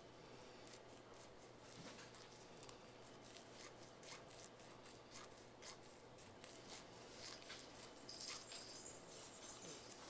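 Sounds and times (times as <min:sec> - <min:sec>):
nail file rasping: 0:00.6 - 0:08.6.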